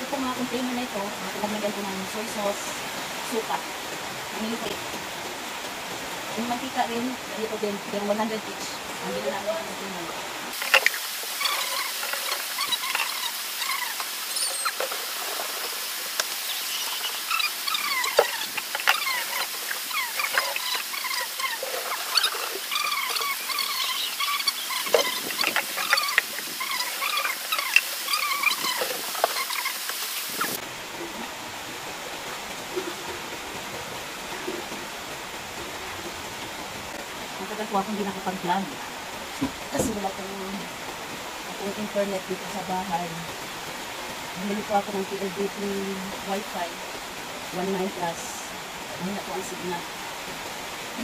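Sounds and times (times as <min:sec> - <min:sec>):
high gurgling chirps: 0:09.0 - 0:31.4.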